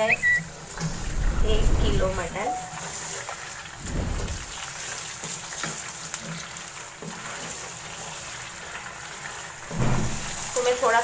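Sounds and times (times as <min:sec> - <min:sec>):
meat sizzling in hot oil: 0:00.0 - 0:11.0.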